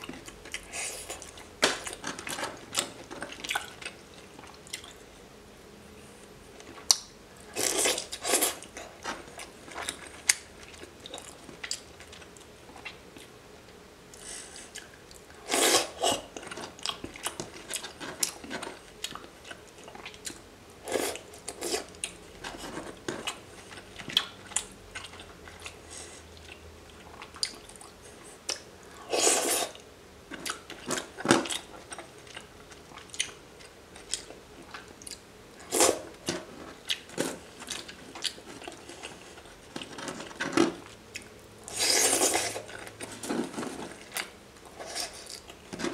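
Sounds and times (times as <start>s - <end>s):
chewing and wet mouth sounds: 0.0s - 5.1s, 6.6s - 13.4s, 14.1s - 45.9s.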